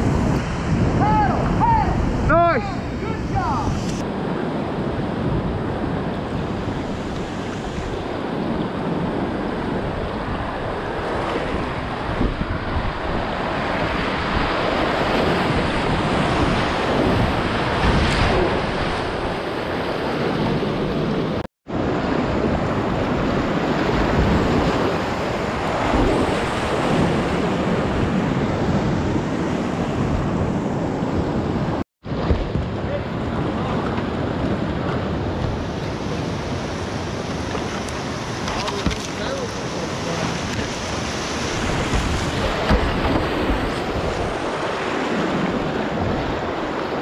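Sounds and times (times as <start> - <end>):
wind on microphone: 0.0 - 47.0
whitewater rushing: 35.7 - 47.0.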